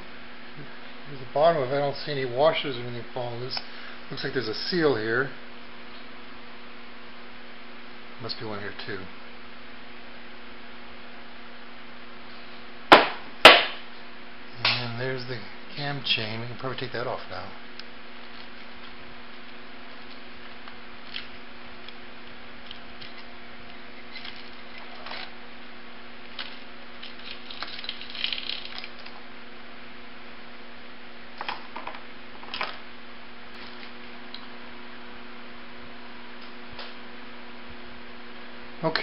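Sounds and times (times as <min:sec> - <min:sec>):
steady low hum: 0:00.0 - 0:39.0
cam chain clicking and rattling: 0:27.0 - 0:29.1.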